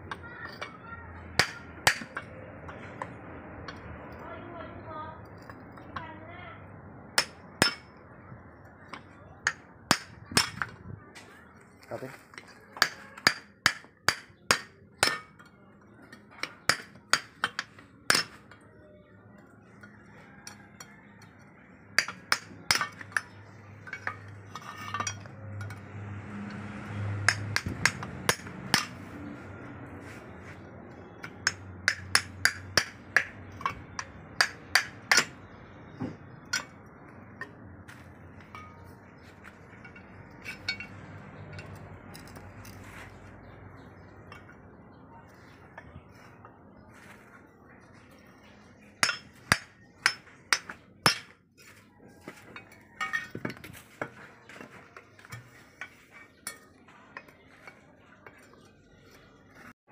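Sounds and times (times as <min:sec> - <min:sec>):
steel bar striking metal: 0:49.0 - 0:51.3.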